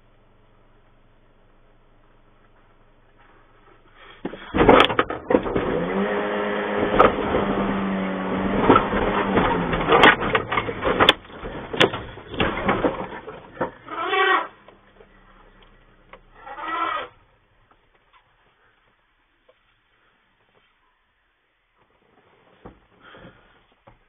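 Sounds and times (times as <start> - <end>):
crunching metal crashes: 4.3 - 6.1, 6.7 - 14.5.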